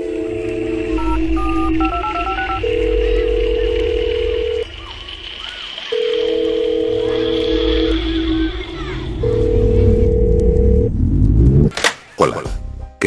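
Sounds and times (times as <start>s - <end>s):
long held synth tone: 0.0s - 4.7s
short electronic beeps: 1.0s - 2.8s
low rumble: 6.8s - 11.7s.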